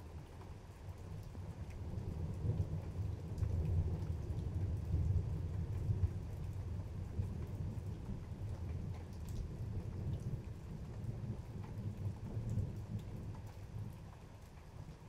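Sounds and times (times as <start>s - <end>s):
rain falling steadily: 0.0s - 15.0s
thunder rumbling low: 1.4s - 13.9s.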